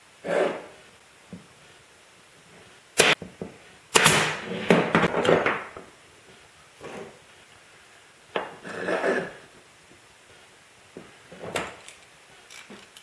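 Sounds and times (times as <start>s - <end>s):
pin nailer firing: 3.0s - 3.2s, 3.9s - 5.2s.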